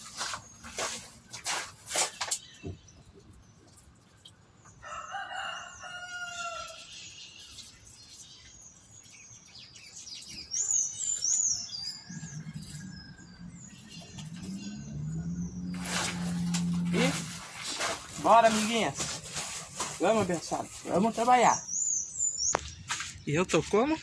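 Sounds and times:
small birds chirping: 0.0 - 24.0
rooster crowing: 4.8 - 6.9, 11.8 - 15.0.

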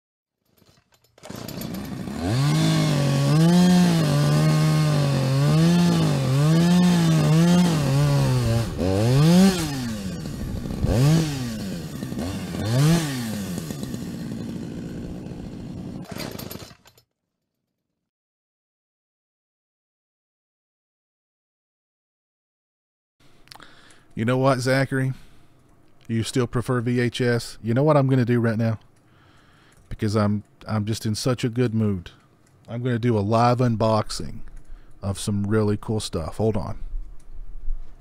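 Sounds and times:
chainsaw revving: 0.6 - 17.0.

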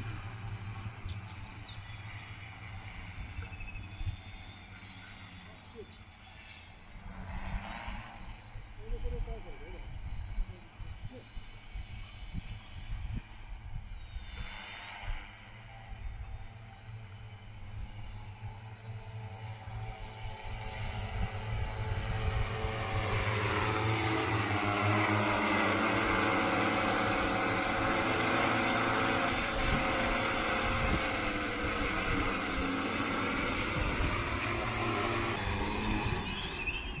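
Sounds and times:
drone rotor hum: 0.0 - 37.0.

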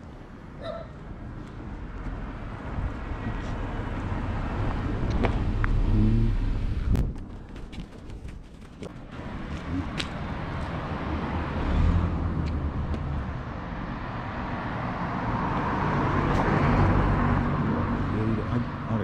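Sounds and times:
vehicle engine and tyre noise: 0.0 - 19.0.

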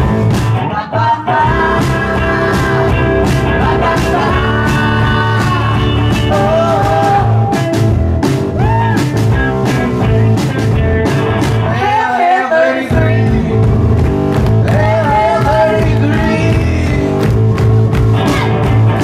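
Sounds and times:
person singing: 0.0 - 8.0, 11.7 - 14.0, 14.6 - 17.2
drums: 0.0 - 12.2, 12.8 - 19.0
bass guitar: 0.0 - 19.0
electric guitar: 0.0 - 19.0.

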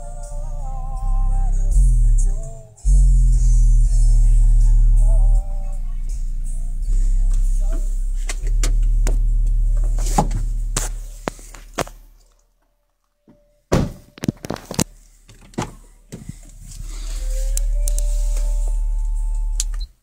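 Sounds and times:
deep bass note from subwoofer: 0.0 - 12.1, 16.8 - 19.9
car door clicks and thunks: 9.8 - 10.5, 13.7 - 14.4.

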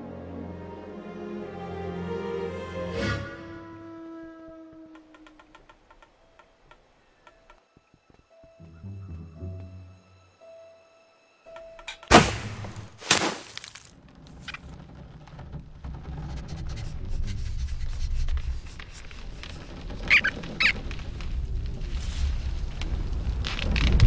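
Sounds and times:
low rumble: 19.2 - 24.0
cartoon rodent squeaks: 20.1 - 20.8.

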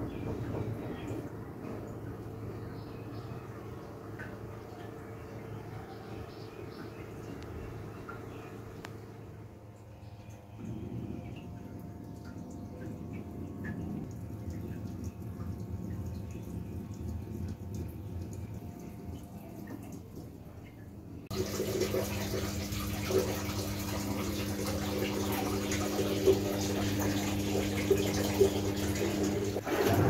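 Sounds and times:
washing machine hum: 0.0 - 30.0
faint low rumble: 4.7 - 19.9
water pouring into drum: 21.3 - 30.0.

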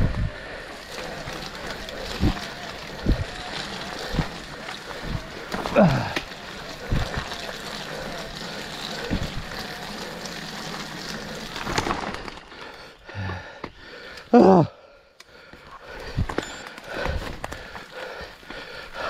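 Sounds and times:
bike tyres rushing through mud: 0.0 - 14.7, 15.8 - 19.0.

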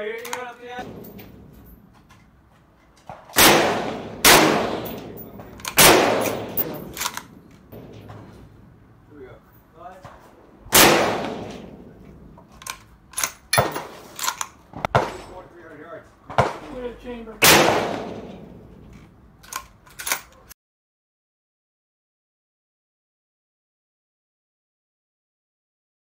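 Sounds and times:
rifle bolt clicking: 0.2 - 0.5, 4.8 - 7.6, 12.4 - 14.6, 18.9 - 20.5
rifle shots echoing: 0.7 - 1.8, 3.3 - 8.9, 10.6 - 15.4, 16.4 - 19.0.

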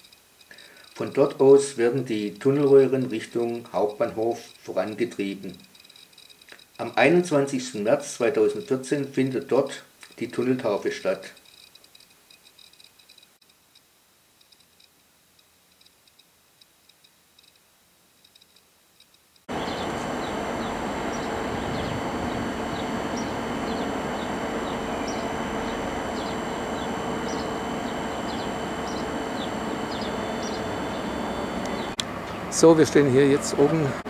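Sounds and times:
birds chirping: 19.5 - 34.0
construction machine hum: 19.5 - 34.0.

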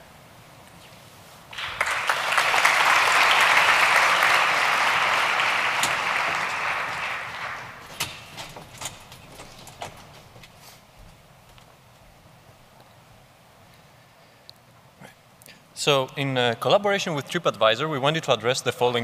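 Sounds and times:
large audience applauding: 1.5 - 8.0.

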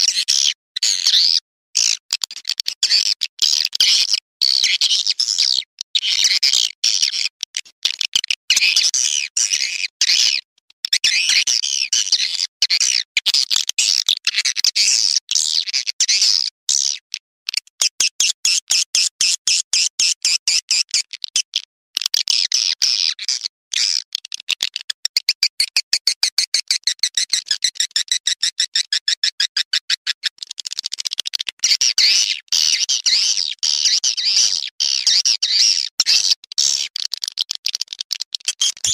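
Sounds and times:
high bird chirping and twittering: 38.6 - 38.9.

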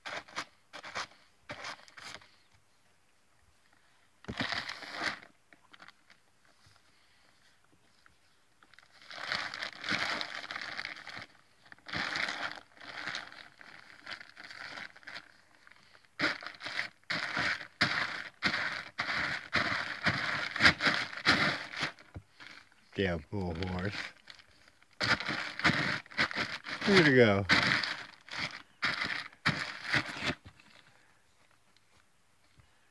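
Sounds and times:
plastic bag crinkling: 8.7 - 15.6, 16.2 - 22.7, 23.4 - 30.8.

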